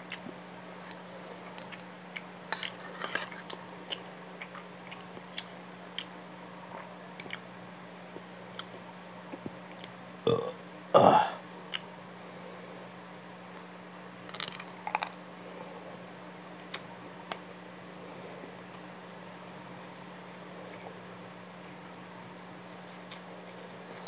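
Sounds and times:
close chewing with mouth clicks: 0.0s - 7.5s, 8.5s - 10.0s, 14.3s - 15.2s, 22.7s - 24.0s
burp: 10.3s - 11.4s.

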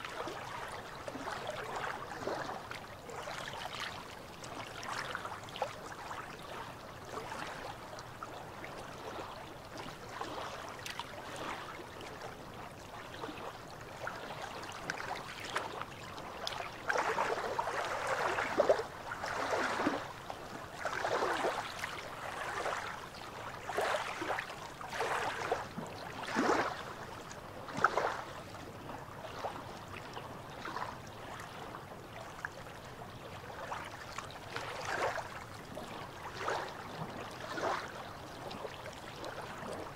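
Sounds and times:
waves lapping against rocks: 13.0s - 29.8s, 33.6s - 39.9s.

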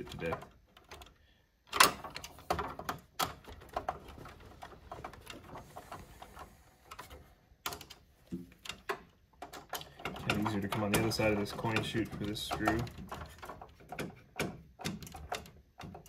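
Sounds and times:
screwdriver clicking on metal screws: 7.0s - 16.0s.

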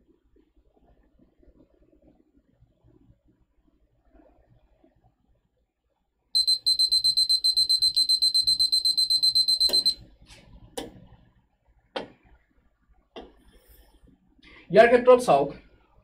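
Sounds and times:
timer alarm beeping rapidly: 6.4s - 10.0s.

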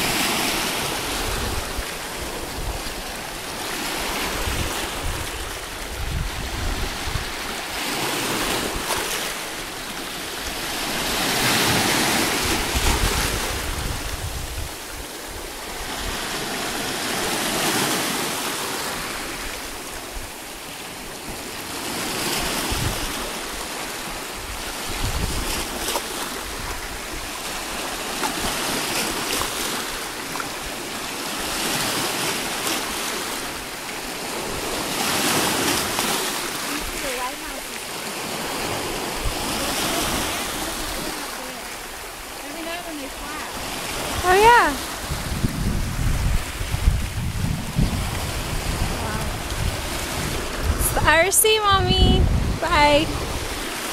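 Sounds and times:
wind rumble on microphone: 0.0s - 9.8s, 10.5s - 16.3s, 22.2s - 27.3s, 43.2s - 53.9s
waves breaking on rocky shore: 0.0s - 53.9s.

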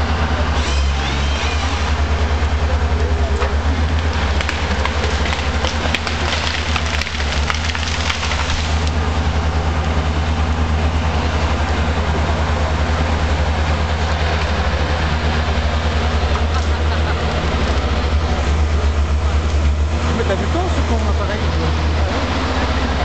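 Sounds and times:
diesel engine running: 0.0s - 23.0s
wood cracking and snapping: 3.9s - 9.0s.

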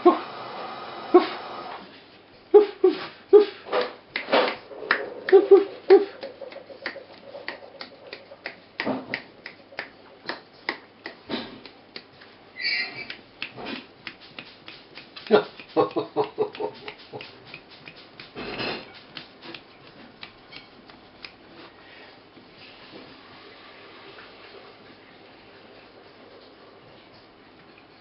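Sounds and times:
sharp little clicks and taps: 3.8s - 12.4s, 13.0s - 21.5s
puppies yipping and whimpering: 12.6s - 13.1s.

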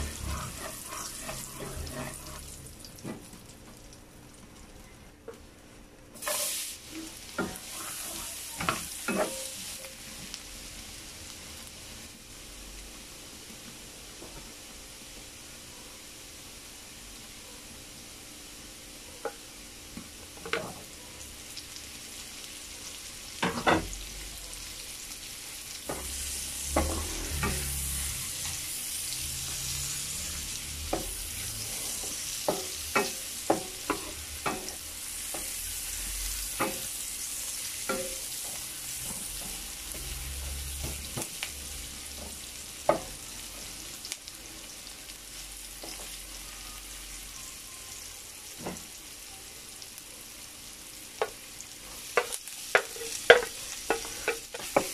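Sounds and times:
wooden spatula scraping pan: 0.0s - 2.5s
onion and garlic sizzling: 0.0s - 54.9s.

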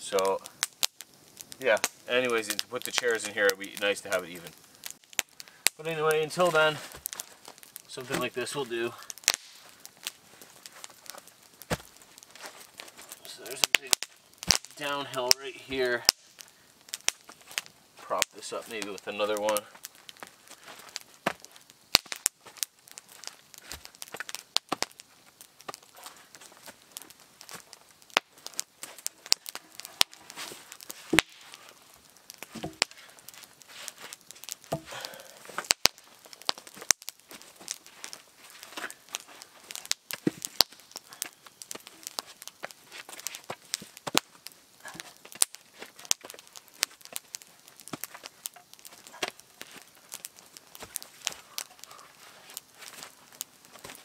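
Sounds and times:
footsteps in dry leaf litter: 45.1s - 54.0s.

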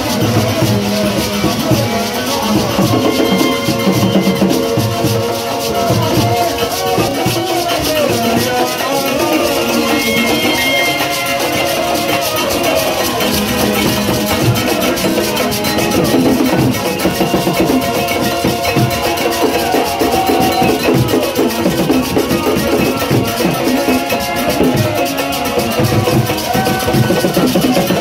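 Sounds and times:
drums: 0.0s - 28.0s
shaker: 0.0s - 28.0s
voices singing into microphones: 0.0s - 28.0s.

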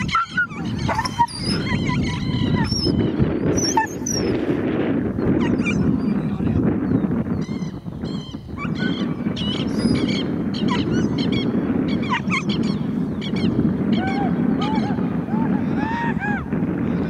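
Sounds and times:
high yelping animal calls: 0.0s - 4.4s, 5.4s - 6.1s, 7.4s - 15.0s
wind rumble on microphone: 0.0s - 17.0s.

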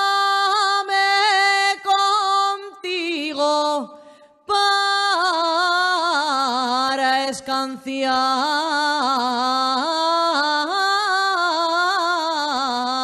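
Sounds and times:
woman singing unaccompanied: 0.0s - 13.0s.

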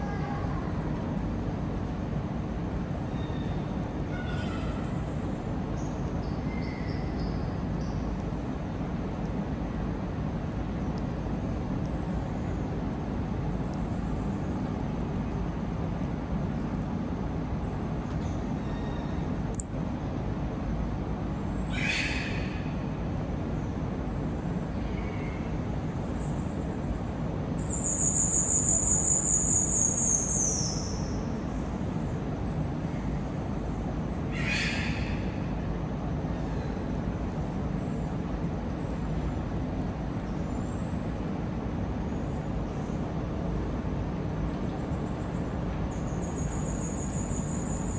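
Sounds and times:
low background hum: 0.0s - 47.9s
sharp high-pitched click: 19.6s - 19.8s.

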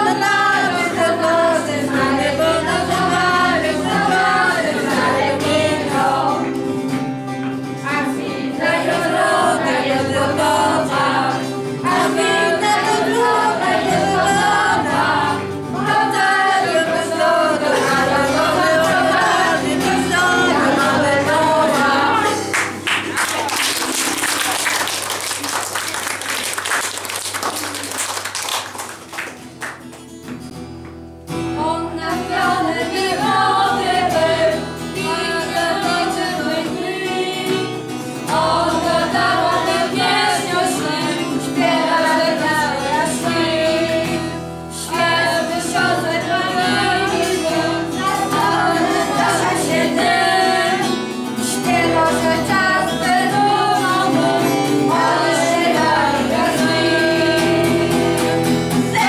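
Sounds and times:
strummed acoustic guitar: 0.0s - 24.5s, 28.7s - 59.0s
group of adults singing: 0.0s - 25.4s, 31.6s - 59.0s
audience clapping: 22.4s - 31.0s.

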